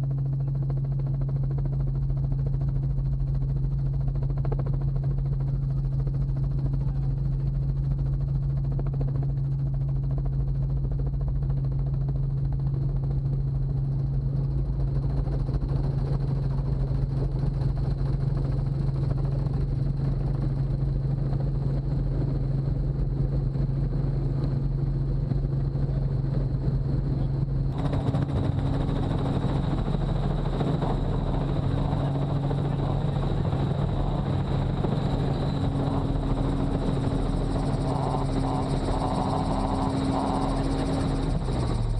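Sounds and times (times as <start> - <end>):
helicopter engine and rotor: 0.0 - 41.9.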